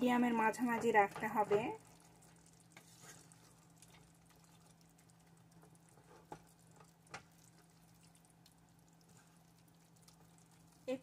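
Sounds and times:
curry simmering with crackles: 0:00.0 - 0:11.0
wooden spatula tapping pan: 0:00.6 - 0:01.8.

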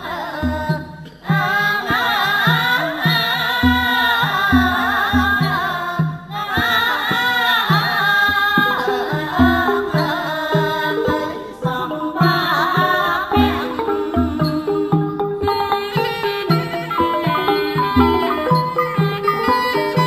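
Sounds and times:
wavering ornamented melody: 0:08.6 - 0:20.0
steady pitched notes: 0:08.8 - 0:20.0.

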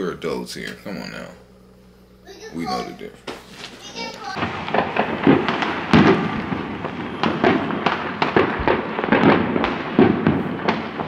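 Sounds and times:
fireworks crackling: 0:02.7 - 0:11.0
fireworks bangs with echoes: 0:03.3 - 0:11.0.

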